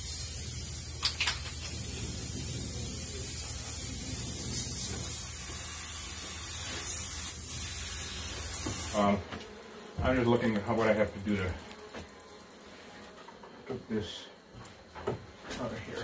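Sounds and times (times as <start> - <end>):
aerosol can spraying: 0.0 - 9.2.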